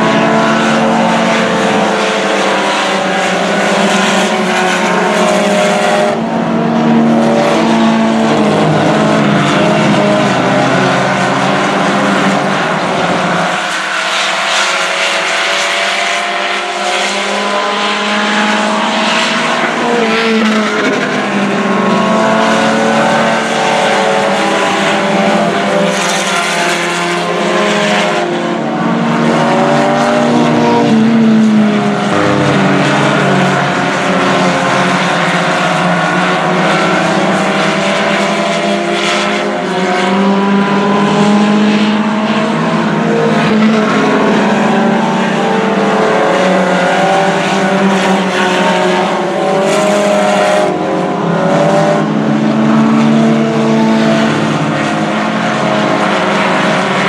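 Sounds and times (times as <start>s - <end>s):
race car engines: 0.0s - 57.0s.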